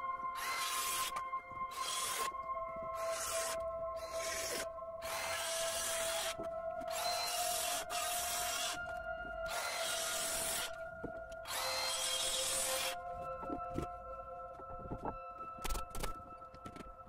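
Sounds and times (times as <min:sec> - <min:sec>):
circular saw cutting wood: 0:00.4 - 0:02.3, 0:03.0 - 0:08.8, 0:09.5 - 0:10.8, 0:11.5 - 0:13.0.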